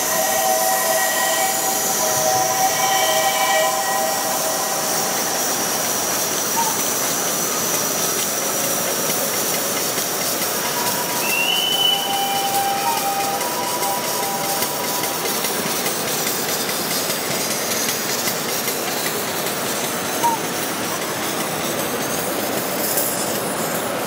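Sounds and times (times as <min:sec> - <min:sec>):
thin squealing tones: 0:00.0 - 0:08.1, 0:09.4 - 0:18.2
steam hissing: 0:00.0 - 0:24.0.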